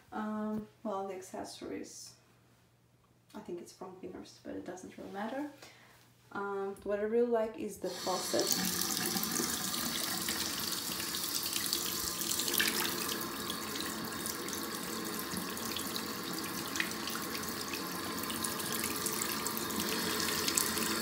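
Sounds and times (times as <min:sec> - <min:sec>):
water pouring into sink: 0:07.9 - 0:21.0.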